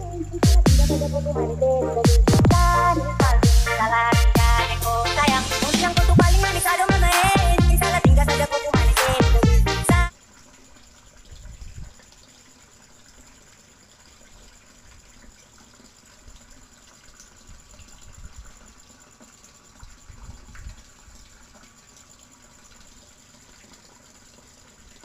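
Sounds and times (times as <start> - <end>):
water pouring into a pond: 10.1 - 25.0.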